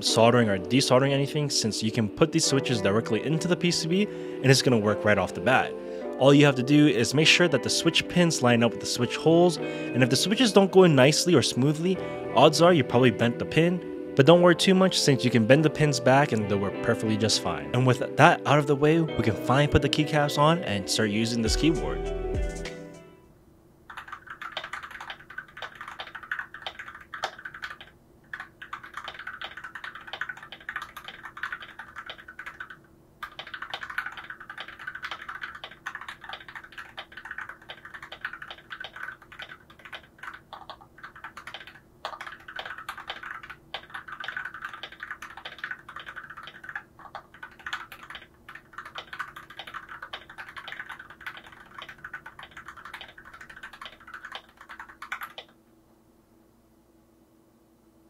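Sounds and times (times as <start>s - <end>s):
mechanical keyboard typing: 23.9s - 55.5s.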